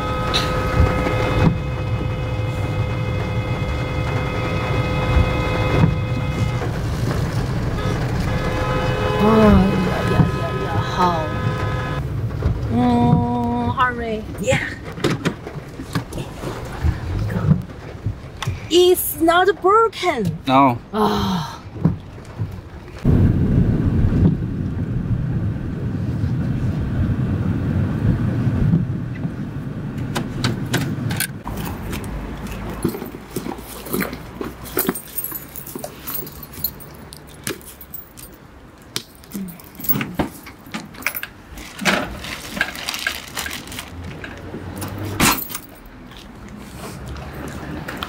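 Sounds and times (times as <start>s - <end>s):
low rumbling: 0.0s - 18.7s, 20.8s - 33.3s
keys jangling in lock: 34.7s - 38.4s, 39.1s - 41.3s, 45.2s - 45.8s
plastic bags rustling: 39.2s - 45.8s.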